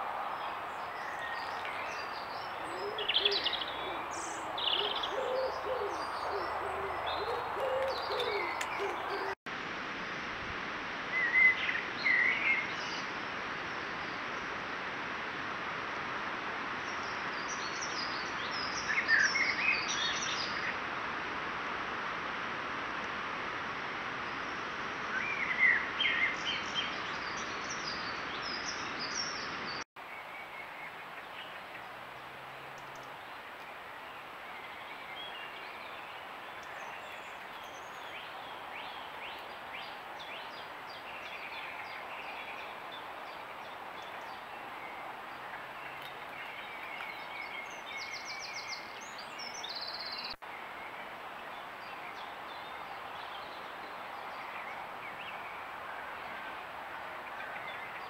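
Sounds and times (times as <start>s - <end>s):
microphone hiss: 0.0s - 58.0s
birds singing and calling: 0.7s - 9.4s.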